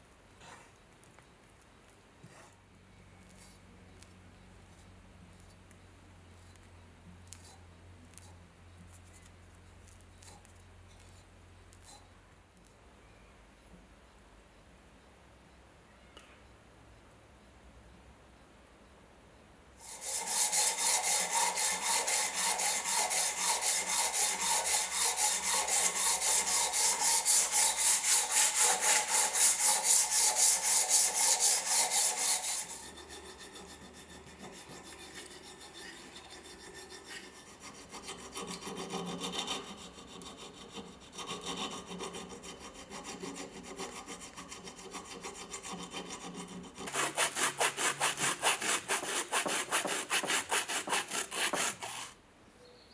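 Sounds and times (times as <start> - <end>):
blade scraping filler: 19.8 - 39.7
sanding strokes on wood: 19.8 - 52.2.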